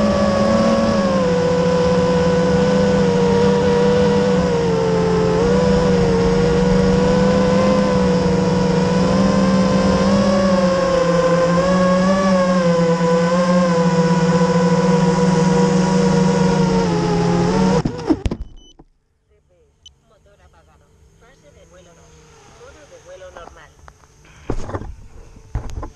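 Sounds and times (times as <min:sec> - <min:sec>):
quadcopter motors whining: 0:00.0 - 0:18.3, 0:20.2 - 0:25.9
drone crashing into grass: 0:24.4 - 0:25.9.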